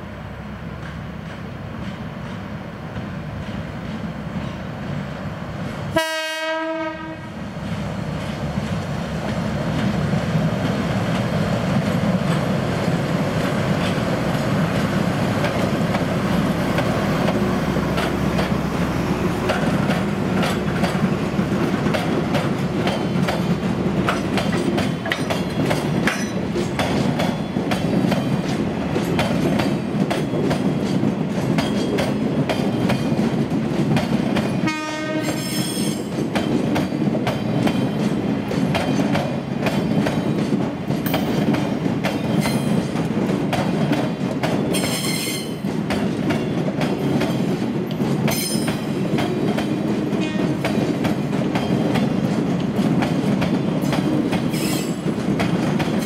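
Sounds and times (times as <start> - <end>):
locomotive horn blast: 5.9 - 7.3, 34.6 - 35.6.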